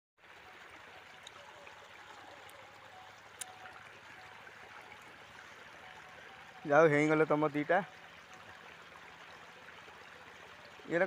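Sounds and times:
outdoor background hiss: 0.2s - 11.0s.

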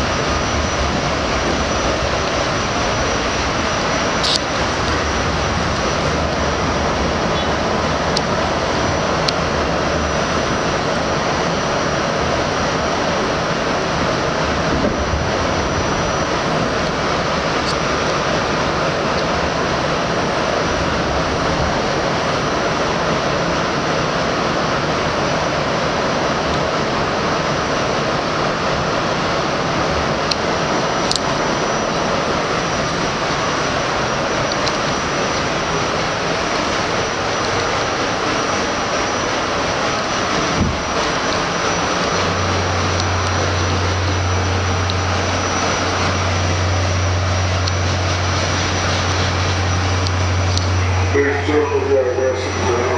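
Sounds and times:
subway car running noise: 0.0s - 52.9s
thin high whine: 0.0s - 52.9s
sharp clicks: 4.2s - 5.0s.

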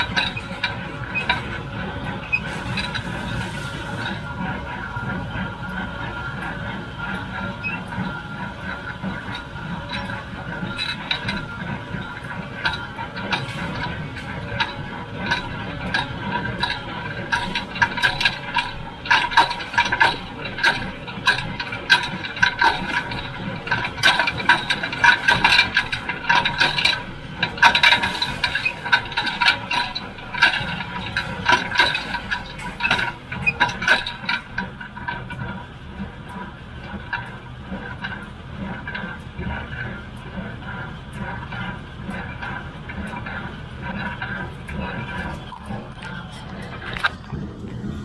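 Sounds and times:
baler clattering and rattling: 0.0s - 48.0s
steady whine: 0.0s - 48.0s
low engine hum: 37.4s - 48.0s.

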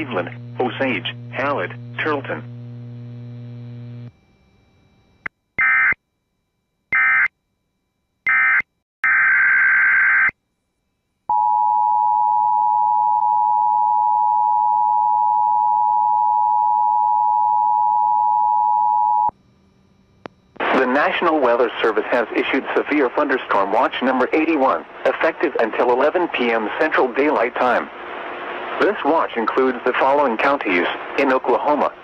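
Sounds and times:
low hum: 0.0s - 5.3s, 19.2s - 22.8s.

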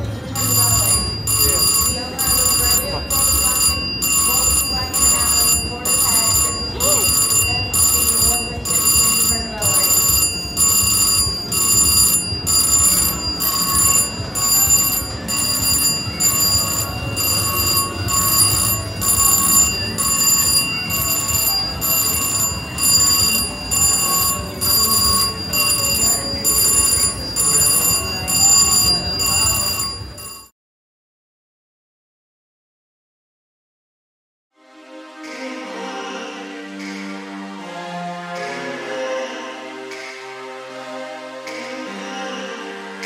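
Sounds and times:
slot machine bell ringing: 0.3s - 30.5s
casino floor hum: 0.4s - 30.4s.

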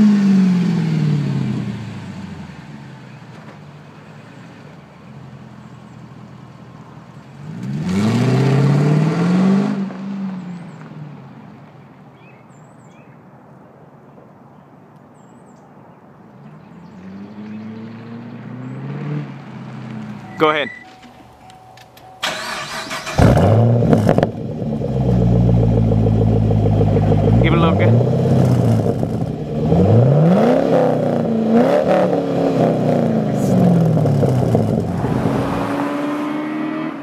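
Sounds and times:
car engine revving and accelerating: 0.0s - 2.7s, 7.4s - 10.4s, 16.8s - 20.2s, 22.3s - 37.0s.

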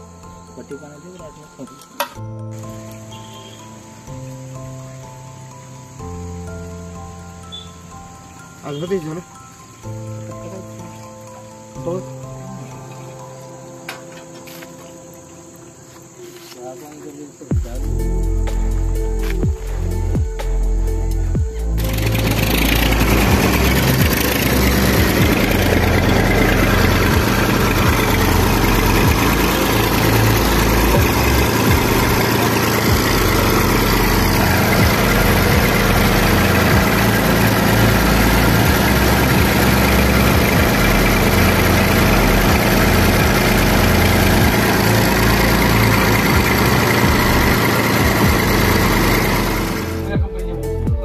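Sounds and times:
tractor diesel engine idling: 21.2s - 50.2s.

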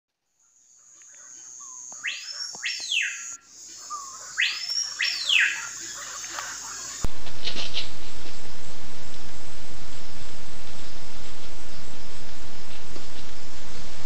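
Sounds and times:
bird calling: 0.4s - 7.9s
steady high-pitched whine: 1.0s - 14.0s.

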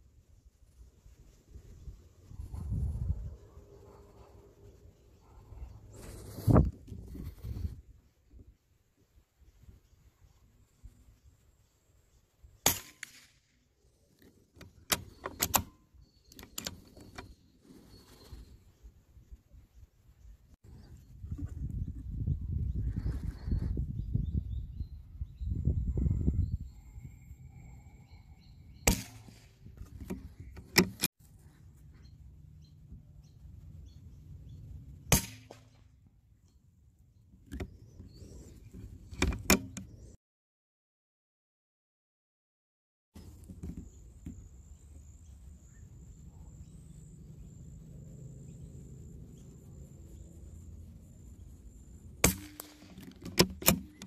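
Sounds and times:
rifle bolt metallic clicks: 14.6s - 17.3s, 52.3s - 54.0s
rifle shots cracking: 52.2s - 53.0s.

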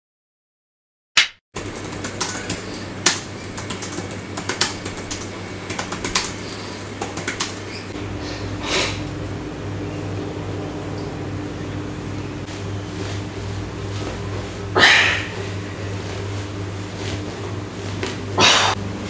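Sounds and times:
laptop keyboard typing: 1.6s - 7.8s
steady low hum: 1.6s - 19.0s.

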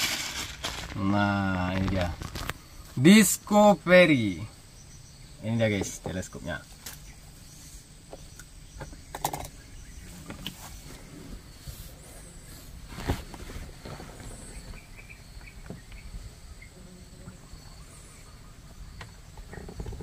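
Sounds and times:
faint high bird chirps: 4.0s - 12.7s, 14.2s - 20.0s.

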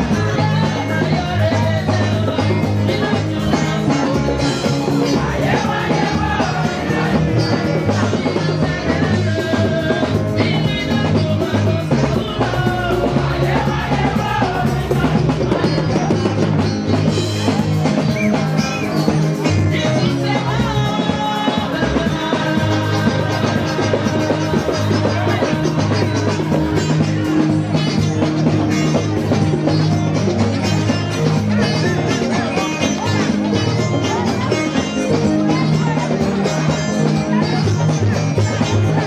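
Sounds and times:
bass and drum beat: 0.0s - 39.0s
singing: 0.0s - 39.0s.

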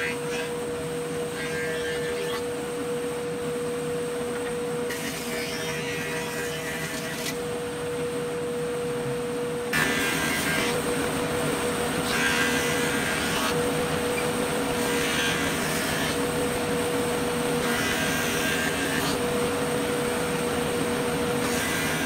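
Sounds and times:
dust collector running: 0.0s - 22.0s
thickness planer whining: 0.0s - 22.0s
planer knives cutting board: 4.4s - 7.4s, 9.8s - 10.9s, 12.0s - 16.3s, 17.6s - 19.4s, 21.4s - 22.0s.

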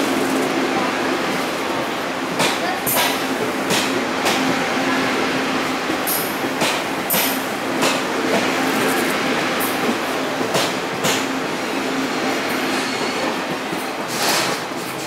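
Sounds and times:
steel wheels rumbling on rail: 0.0s - 15.0s.

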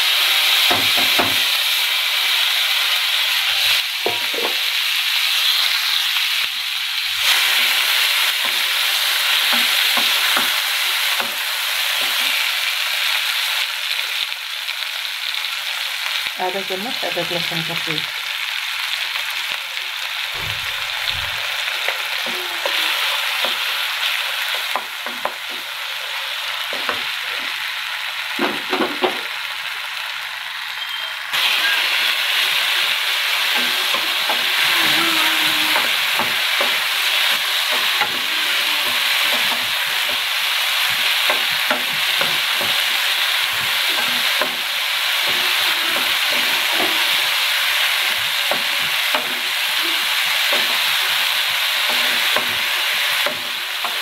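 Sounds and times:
food sizzling in hot oil: 0.0s - 54.0s.

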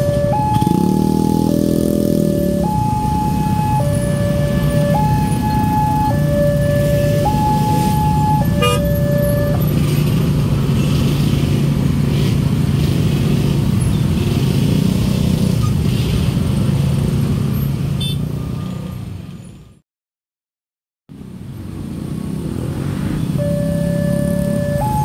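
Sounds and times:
two-tone crossing alarm: 0.0s - 10.0s, 23.4s - 25.0s
motorcycle engines running: 0.0s - 17.9s, 21.2s - 25.0s.

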